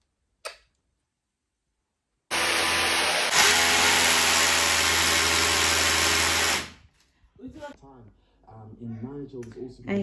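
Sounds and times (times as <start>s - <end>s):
electric drill boring into wall: 2.3s - 6.8s.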